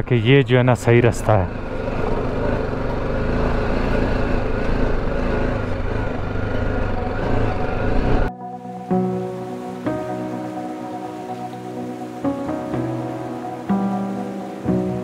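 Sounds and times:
road noise: 0.0 - 15.0
motorcycle engine running: 0.9 - 8.3.

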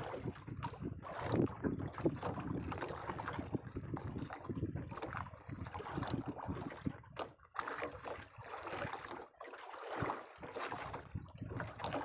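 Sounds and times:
wind on microphone: 0.0 - 7.3, 10.4 - 12.0
water splashing against boat hull: 0.0 - 12.0.

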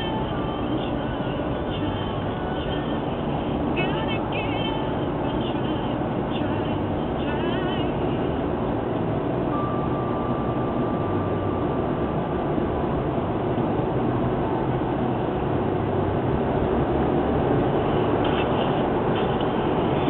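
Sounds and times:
car cabin road noise: 0.0 - 20.0.

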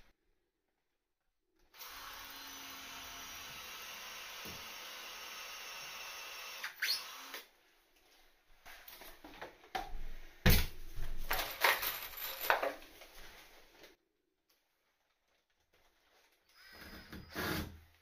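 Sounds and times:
cordless drill: 1.7 - 7.5, 16.5 - 17.8
power tool whirring: 1.7 - 7.5
timber handled on tiled floor: 8.6 - 14.0.

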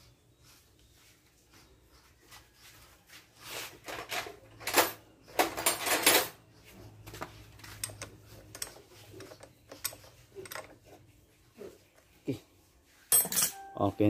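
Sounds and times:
metal tools scraping and clattering: 3.7 - 6.5, 7.2 - 11.1, 13.0 - 14.0.

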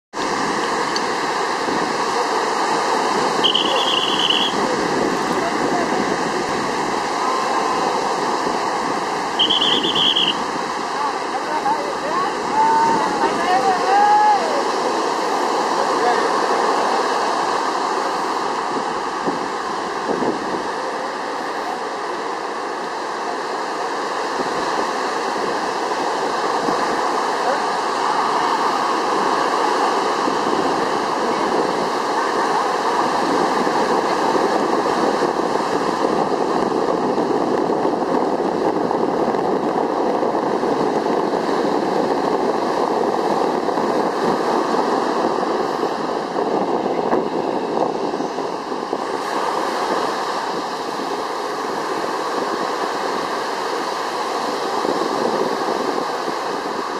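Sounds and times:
water rushing: 0.1 - 56.9
wind rushing: 0.1 - 56.9.

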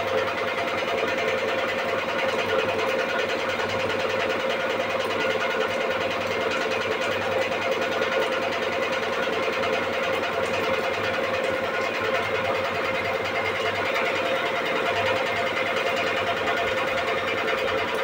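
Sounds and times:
machine humming steadily: 0.0 - 18.0.

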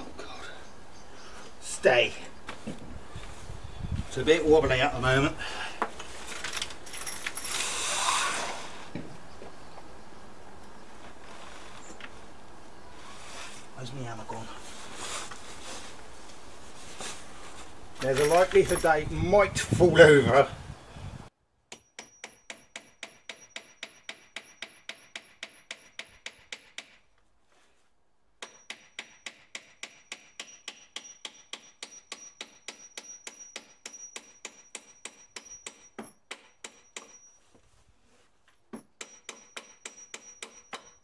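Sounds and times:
hammer driving nails into wood: 21.7 - 27.1, 28.4 - 37.2.

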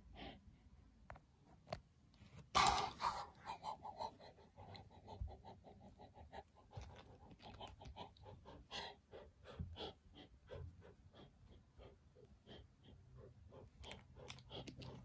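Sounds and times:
person panting quickly: 7.6 - 13.8.

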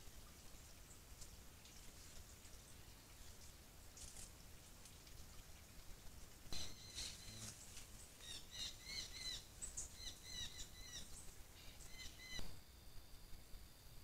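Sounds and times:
bird chirping: 6.6 - 7.6, 8.2 - 12.6.

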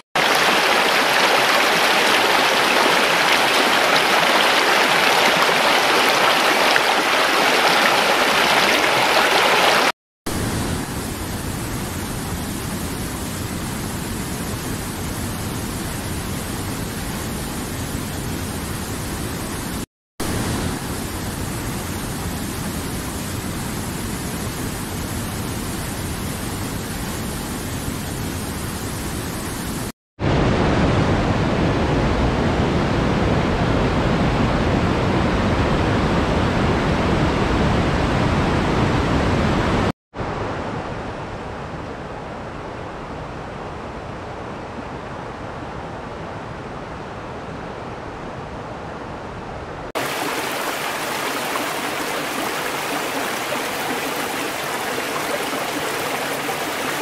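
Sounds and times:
river water rushing over rocks: 0.2 - 9.9, 50.0 - 57.0.

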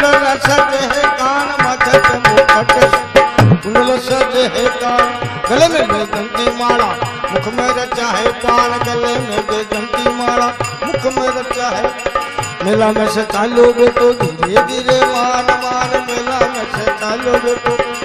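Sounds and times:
hand drum beat: 0.0 - 11.8
harmonium melody: 0.0 - 18.0.

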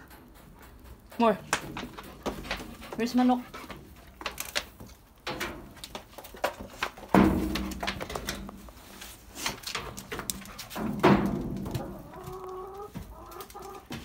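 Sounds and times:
wire cage knocks and rattles: 0.0 - 3.1, 3.8 - 8.7, 9.4 - 12.0
hen clucking low: 11.8 - 13.9.

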